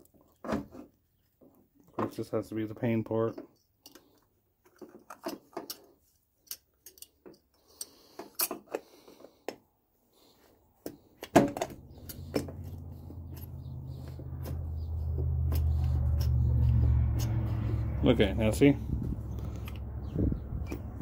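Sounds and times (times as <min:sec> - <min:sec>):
steady low hum: 0:11.6 - 0:21.0.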